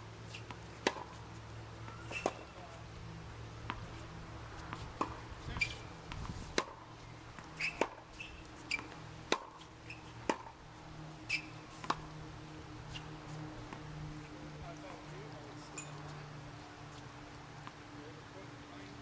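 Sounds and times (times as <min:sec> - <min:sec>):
tennis balls struck by rackets: 0:00.4 - 0:01.2, 0:01.8 - 0:02.8, 0:03.6 - 0:10.6, 0:11.2 - 0:12.2.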